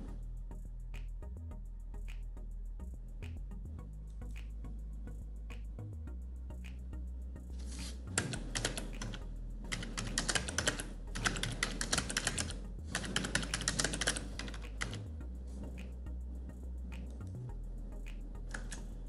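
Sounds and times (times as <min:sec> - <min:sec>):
typing on a computer keyboard: 0:08.2 - 0:15.0, 0:18.5 - 0:18.8.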